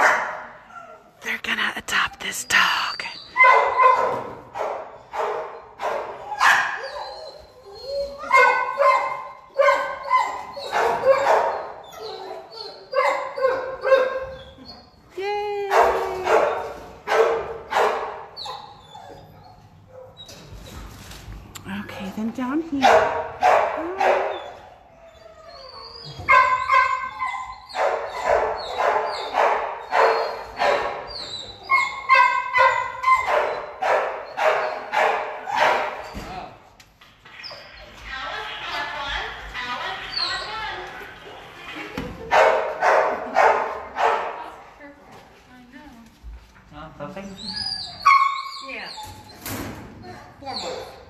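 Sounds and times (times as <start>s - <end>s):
dog barking: 0.0s - 0.5s, 3.4s - 6.8s, 8.3s - 11.8s, 12.9s - 14.3s, 15.7s - 18.3s, 22.8s - 24.6s, 26.2s - 31.1s, 31.7s - 36.0s, 42.3s - 44.5s.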